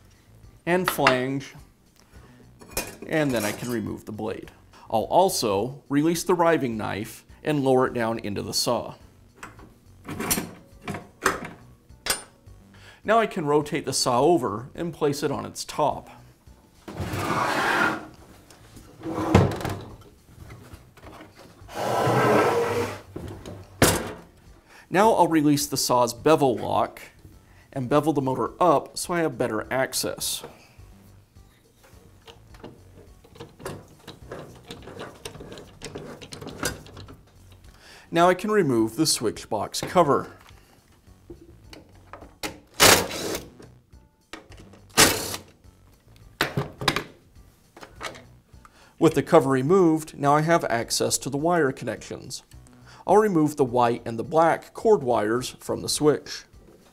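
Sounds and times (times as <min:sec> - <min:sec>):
table saw scraping on wooden bench: 0:16.9 - 0:18.2, 0:19.0 - 0:19.6, 0:21.6 - 0:23.1.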